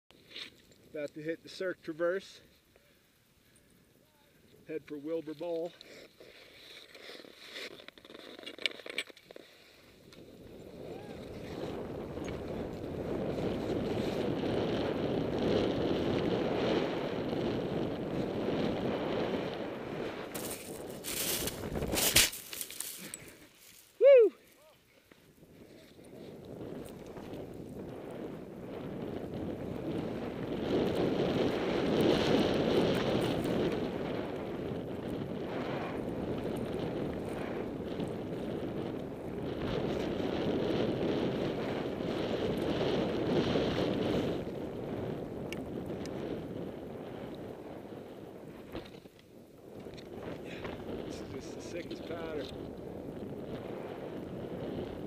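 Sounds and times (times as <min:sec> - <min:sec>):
skis sliding over snow: 0:04.8 - 0:55.0
wind rushing over microphone: 0:10.1 - 0:22.6, 0:25.4 - 0:55.0.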